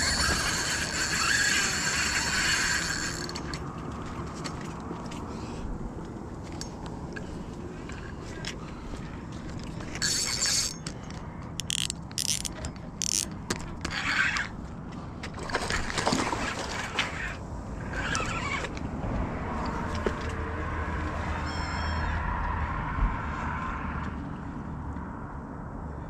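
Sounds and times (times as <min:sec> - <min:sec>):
fishing reel whirring and clicking: 0:00.0 - 0:03.7, 0:09.6 - 0:14.6, 0:17.2 - 0:18.8.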